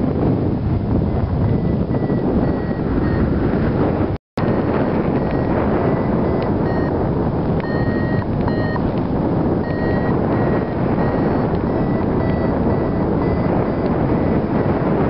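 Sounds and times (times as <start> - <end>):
variometer short high beeps: 1.1 - 3.4, 4.6 - 7.0, 7.6 - 8.8, 9.6 - 14.7.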